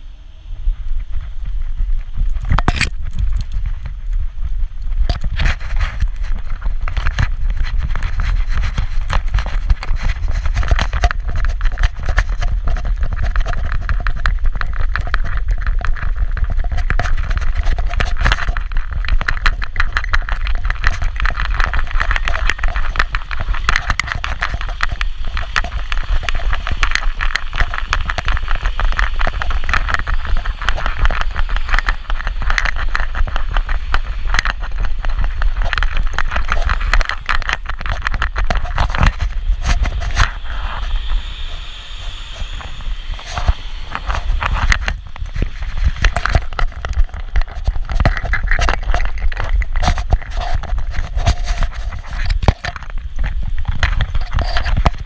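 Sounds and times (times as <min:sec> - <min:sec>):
harness hardware rattling: 0:02.2 - 0:03.8.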